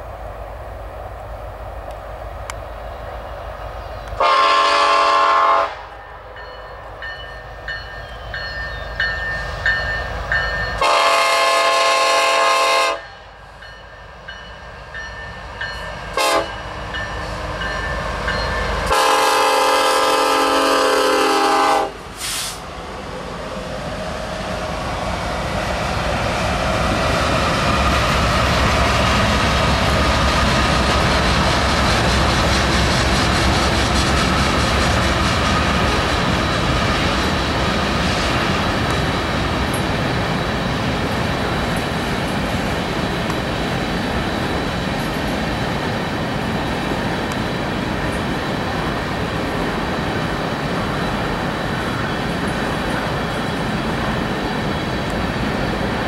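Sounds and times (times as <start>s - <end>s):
train rolling past: 0.0s - 56.0s
locomotive air horn: 4.2s - 6.0s, 10.8s - 13.2s, 16.2s - 16.6s, 18.8s - 22.6s.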